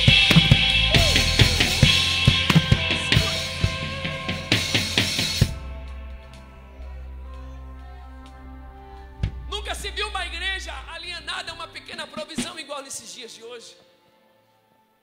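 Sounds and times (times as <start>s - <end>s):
drum kit with crashing cymbals: 0.0s - 5.6s.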